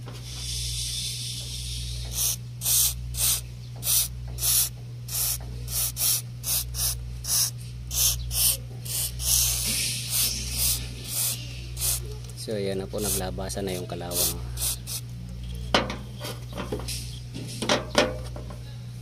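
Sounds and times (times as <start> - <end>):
aerosol spray hissing: 2.1 - 12.1, 13.0 - 15.0.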